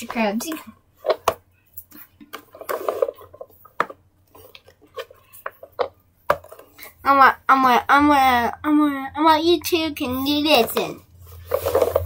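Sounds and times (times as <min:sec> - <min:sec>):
plastic toys clicking and knocking: 0:00.0 - 0:06.9.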